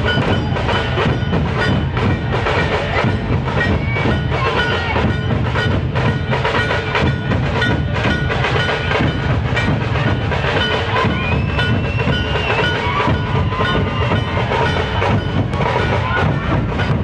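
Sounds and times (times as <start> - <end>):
dhol drums: 0.0 - 17.0
tasha kettle drums: 0.0 - 17.0.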